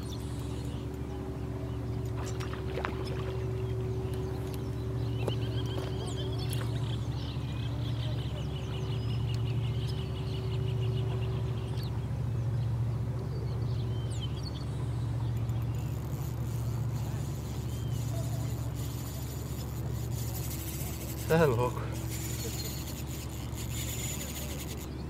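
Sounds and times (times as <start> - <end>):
steady low hum: 0.0 - 25.0
thin high whine: 15.7 - 24.9.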